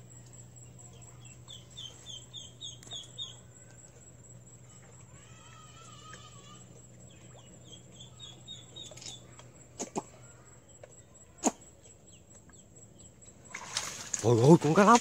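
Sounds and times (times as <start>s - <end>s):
duckling peeping: 1.5s - 3.6s.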